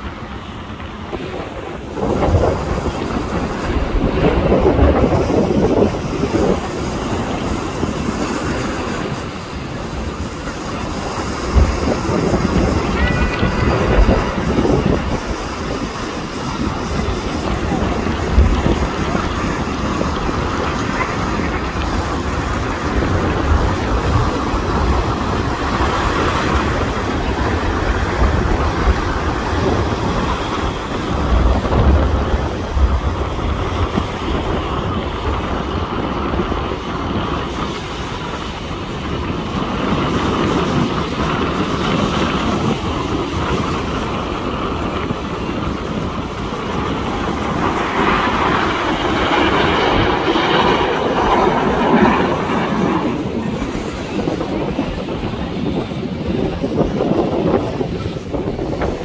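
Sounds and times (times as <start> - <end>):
jet engines roaring past: 0.0 - 59.0.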